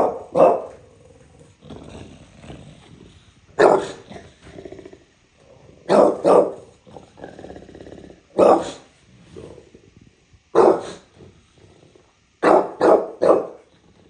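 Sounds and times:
dog barking: 0:00.0 - 0:00.8, 0:03.6 - 0:04.0, 0:05.9 - 0:06.7, 0:08.4 - 0:08.9, 0:10.6 - 0:11.1, 0:12.4 - 0:13.7
dog grumbling: 0:00.7 - 0:12.4, 0:13.5 - 0:14.0.

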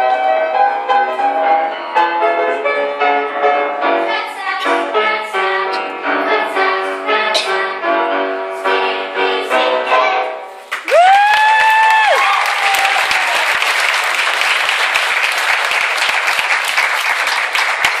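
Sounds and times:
children singing a song: 0:03.8 - 0:10.6
audience applause: 0:10.7 - 0:18.0
high cheer: 0:10.8 - 0:15.6.

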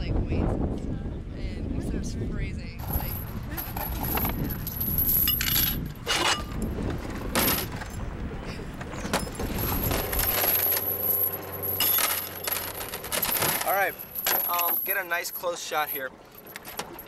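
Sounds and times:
low rumble: 0:00.0 - 0:13.4
metal chain clinking: 0:02.8 - 0:06.7, 0:07.3 - 0:08.0, 0:09.0 - 0:17.0.

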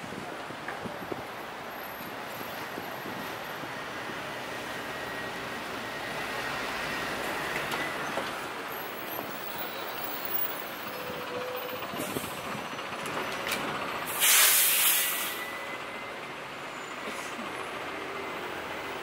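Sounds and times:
street traffic: 0:00.0 - 0:19.0
bus air brakes hissing: 0:14.0 - 0:15.8, 0:16.7 - 0:17.7.

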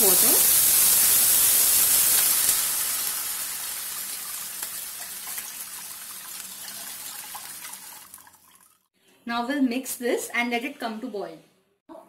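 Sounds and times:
water pouring splash: 0:00.0 - 0:08.9
water sizzling in hot oil: 0:00.0 - 0:08.9.

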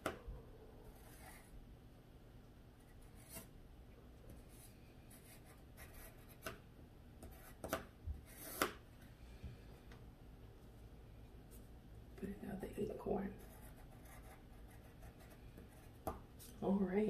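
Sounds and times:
pencil scratching on paper: 0:01.0 - 0:01.5, 0:02.8 - 0:03.5, 0:04.3 - 0:06.5, 0:07.2 - 0:08.8, 0:13.3 - 0:16.2.

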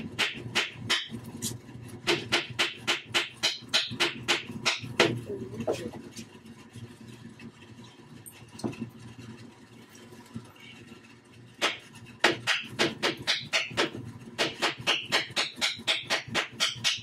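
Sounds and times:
hammer striking nail into wood: 0:00.0 - 0:01.2, 0:02.0 - 0:05.2, 0:11.6 - 0:17.0.

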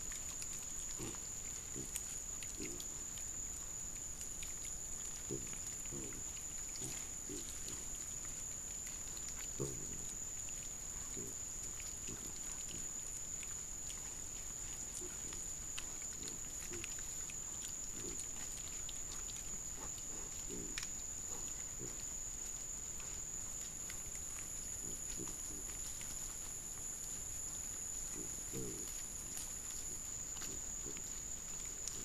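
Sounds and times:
wild boar grunting: 0:05.2 - 0:07.9, 0:09.6 - 0:10.1, 0:17.9 - 0:22.0, 0:28.1 - 0:29.0.

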